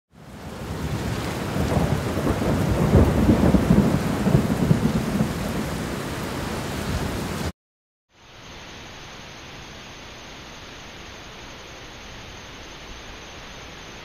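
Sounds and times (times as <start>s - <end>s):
rain hissing: 0.2s - 7.5s, 8.1s - 14.0s
thunder rumbling: 0.3s - 7.5s.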